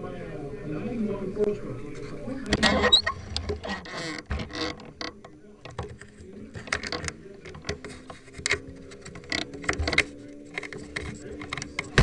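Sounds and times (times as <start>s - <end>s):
irregular clicks and knocks: 2.5s - 12.0s.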